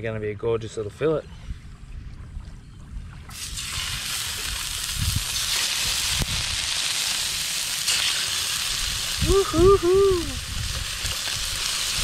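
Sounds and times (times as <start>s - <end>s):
fish sizzling in hot oil: 3.3s - 12.0s.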